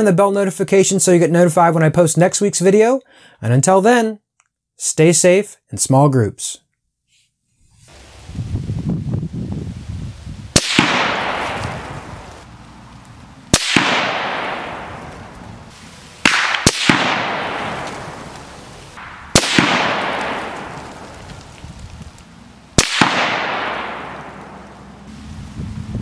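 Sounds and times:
rolling echo of gunshots: 10.6 - 12.3, 13.5 - 21.6, 22.8 - 25.0
rifle shots cracking: 10.6 - 12.4, 13.5 - 25.1.

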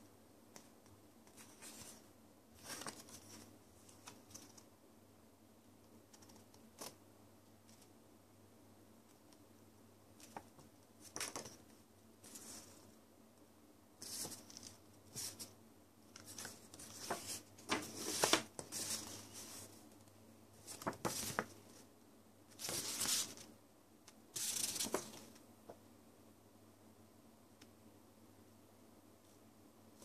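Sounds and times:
paper rustling: 2.6 - 4.6, 16.2 - 19.8, 20.6 - 21.8, 22.6 - 23.5, 24.4 - 25.4.

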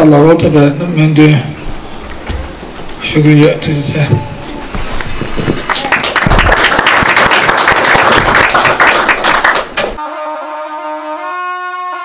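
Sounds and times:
audience applauding: 5.6 - 10.0
instrumental music with held notes: 10.0 - 12.0.

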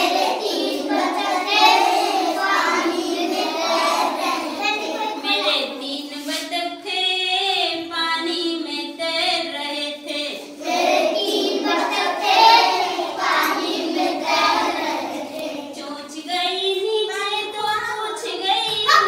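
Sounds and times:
children singing in unison: 0.0 - 6.0, 10.4 - 16.0.

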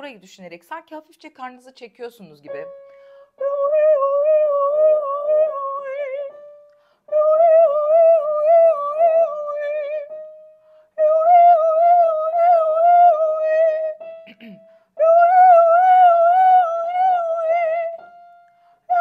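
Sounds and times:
woman breathing: 2.8 - 3.4, 6.8 - 7.1, 10.6 - 11.0, 14.6 - 15.0, 18.4 - 18.9
woman singing vocal warm-up: 3.3 - 6.4, 7.1 - 10.2, 11.0 - 18.1.

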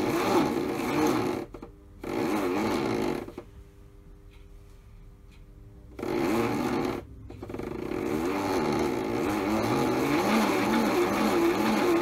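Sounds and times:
small electric motor whine: 6.0 - 12.0.

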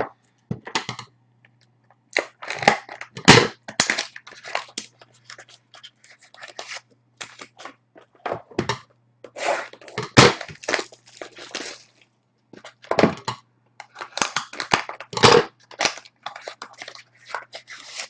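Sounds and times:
foil packs crinkling: 2.2 - 7.7, 9.4 - 12.0, 13.8 - 18.0.

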